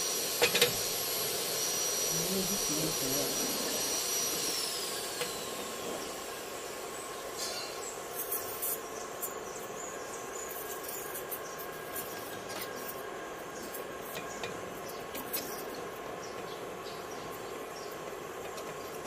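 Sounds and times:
welding torch flame hissing: 0:00.0 - 0:19.0.

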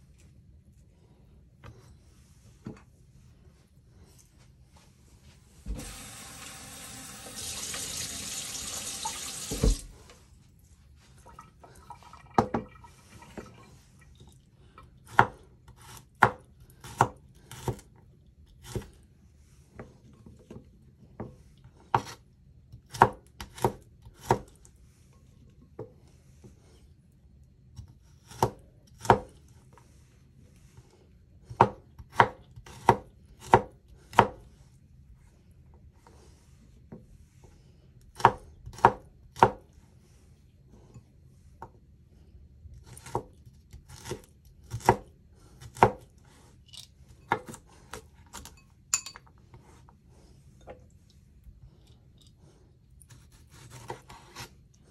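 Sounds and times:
water running from a tap: 0:05.7 - 0:10.0
knife chopping on cutting board: 0:15.1 - 0:17.9, 0:21.9 - 0:22.2, 0:22.9 - 0:24.6, 0:27.8 - 0:29.4, 0:31.5 - 0:34.4, 0:38.1 - 0:39.6, 0:42.8 - 0:43.3, 0:43.9 - 0:46.1, 0:53.1 - 0:54.5.

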